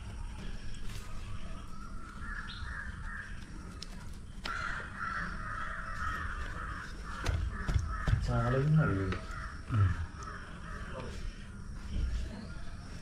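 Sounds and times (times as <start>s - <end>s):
crows cawing: 2.0s - 3.6s, 4.4s - 11.7s.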